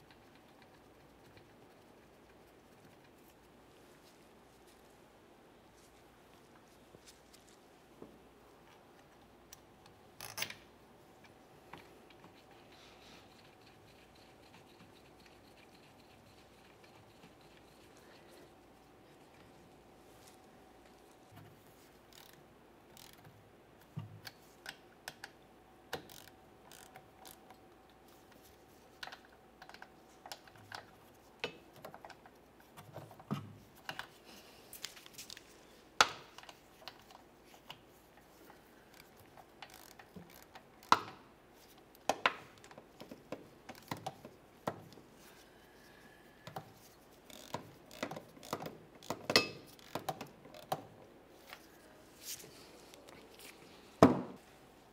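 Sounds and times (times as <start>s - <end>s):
hand ratchet clicking: 22.1s - 23.2s, 26.0s - 27.6s, 38.9s - 41.1s, 47.2s - 50.8s.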